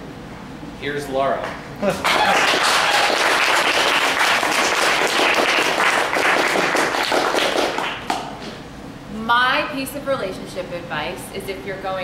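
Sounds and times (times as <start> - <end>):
audience applauding: 2.0 - 8.3.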